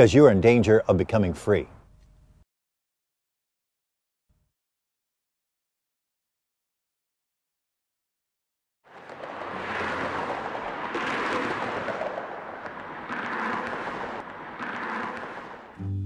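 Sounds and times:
freeway traffic rushing: 0:08.9 - 0:15.9.

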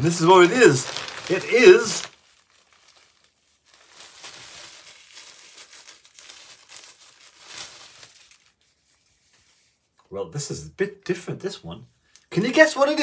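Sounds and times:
paper insert crackling: 0:00.0 - 0:08.8
fabric crinkling and rustling: 0:00.0 - 0:09.9.

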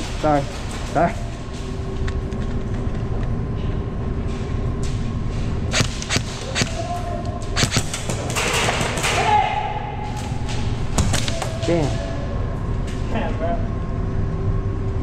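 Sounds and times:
steady background hum: 0:00.0 - 0:15.0
airsoft gunfire: 0:05.7 - 0:06.9, 0:07.6 - 0:09.3.

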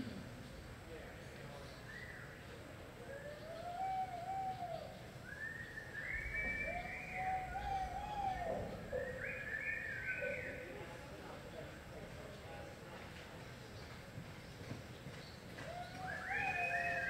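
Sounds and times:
spectators whooping: 0:15.7 - 0:17.0.

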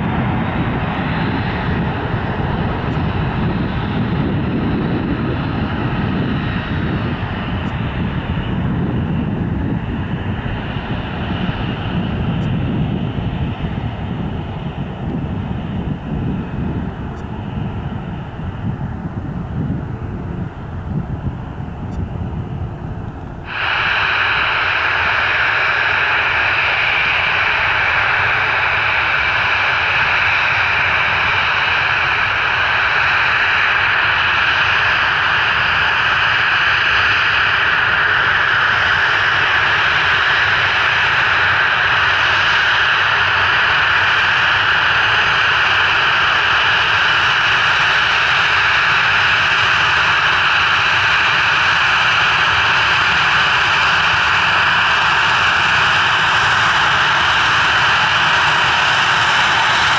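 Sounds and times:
jet engines whining hiss: 0:00.0 - 0:59.9.

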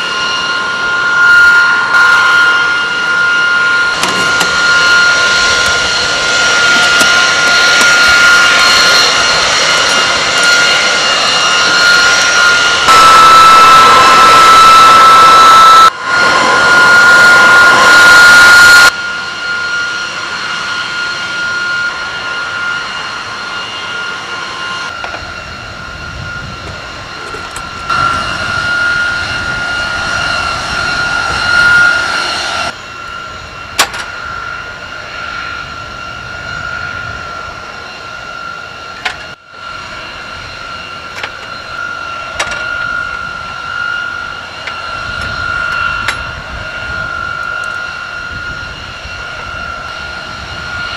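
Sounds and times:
jet turbines whining: 0:00.0 - 0:50.9.

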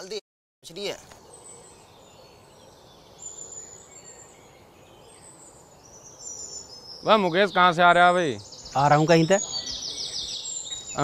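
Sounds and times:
steady low hiss: 0:00.0 - 0:11.0
high-pitched bird chirps: 0:05.0 - 0:11.0.

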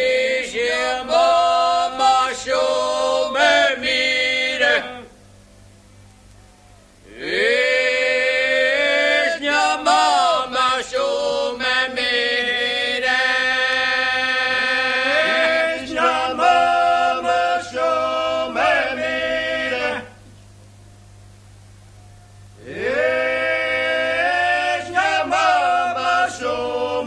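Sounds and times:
person singing a slow chant: 0:00.0 - 0:05.2, 0:07.0 - 0:20.2, 0:22.6 - 0:27.0.

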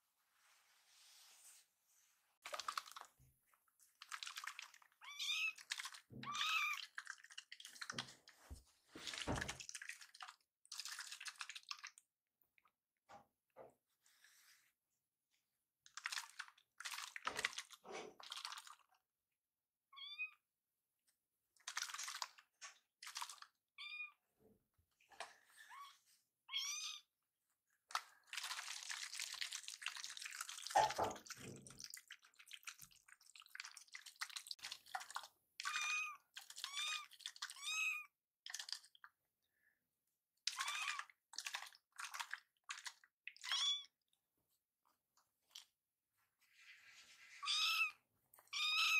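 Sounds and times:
kitten meowing: 0:47.4 - 0:48.9.

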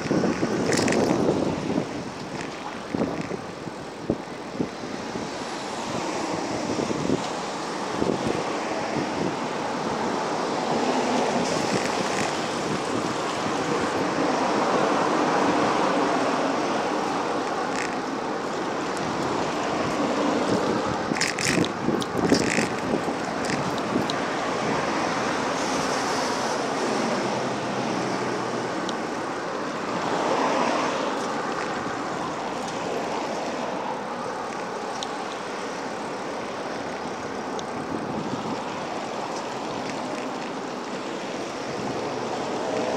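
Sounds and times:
cars passing: 0:00.0 - 0:42.9
sharp clicks and rattles: 0:00.3 - 0:01.2, 0:21.1 - 0:24.2.

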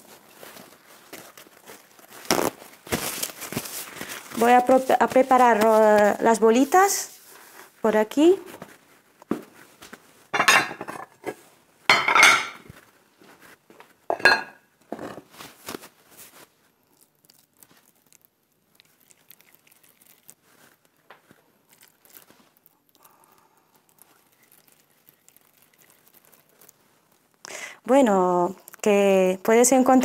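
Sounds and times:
hands rolling meat mixture: 0:00.0 - 0:10.3, 0:15.3 - 0:27.4
dishes clattering: 0:10.3 - 0:11.3, 0:11.9 - 0:12.7, 0:14.1 - 0:15.2.

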